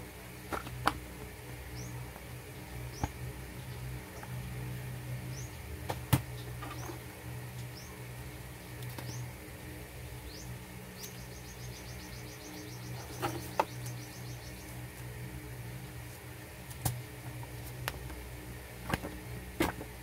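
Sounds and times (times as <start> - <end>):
steady low hum: 0.0 - 20.0
bird chirping and trilling: 10.2 - 14.8.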